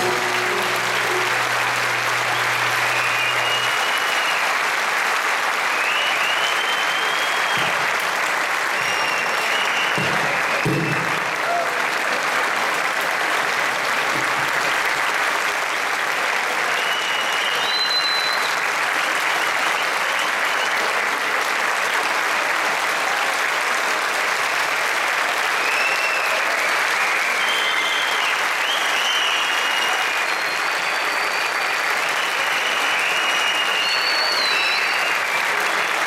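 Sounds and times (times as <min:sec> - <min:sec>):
audience applauding: 0:00.0 - 0:36.0.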